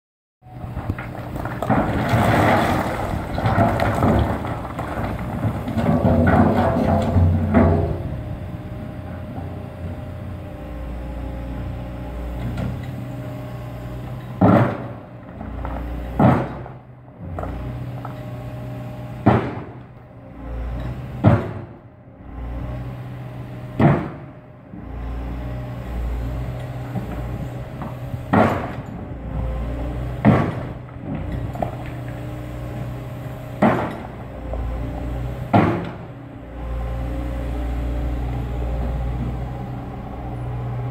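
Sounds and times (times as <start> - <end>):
excavator diesel engine running: 0.4 - 40.9
bucket clunking on stones: 1.5 - 8.0.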